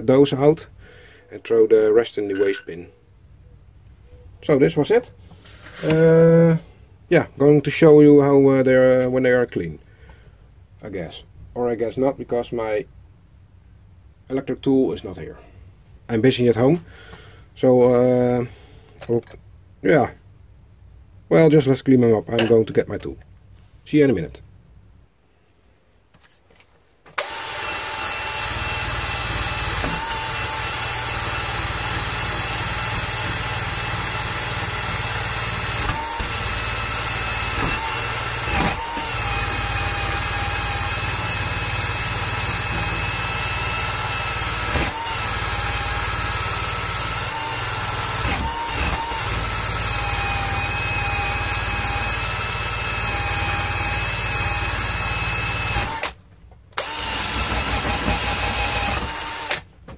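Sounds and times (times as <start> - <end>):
drill motor whine: 27.2 - 56.2, 56.8 - 59.6.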